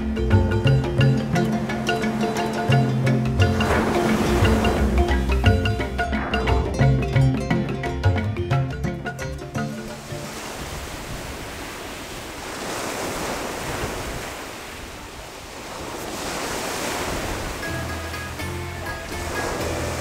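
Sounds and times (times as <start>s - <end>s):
music: 0.0s - 10.6s, 17.6s - 20.0s
wind: 0.0s - 20.0s
waves breaking on rocky shore: 0.9s - 8.0s, 9.1s - 20.0s.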